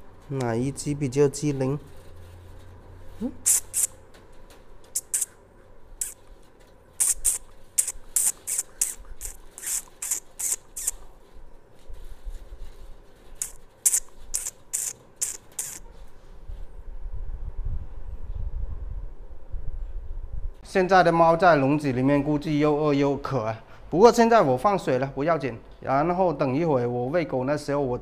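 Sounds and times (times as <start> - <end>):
kittens hissing and spitting: 3.2 - 4.0, 5.0 - 5.4, 6.0 - 6.2, 7.0 - 11.1, 13.4 - 15.8.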